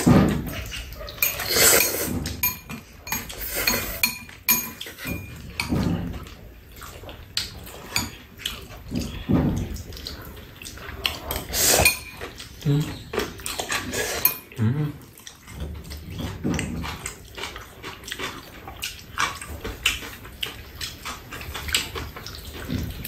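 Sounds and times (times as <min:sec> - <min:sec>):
noodles being slurped: 0:00.0 - 0:23.0
chopsticks clicking on bowls: 0:01.0 - 0:05.9, 0:11.1 - 0:12.5, 0:14.1 - 0:14.6.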